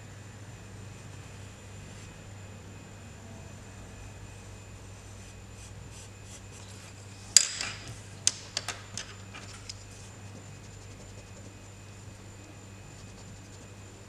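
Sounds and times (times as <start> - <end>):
pencil scratching on paper: 9.9 - 11.7, 12.9 - 13.9.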